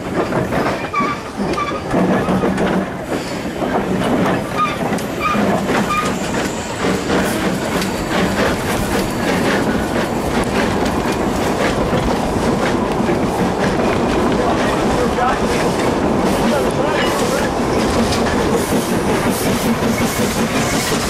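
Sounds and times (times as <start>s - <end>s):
steam locomotive passing: 0.0s - 21.0s
train wheels clattering over rail joints: 0.0s - 21.0s.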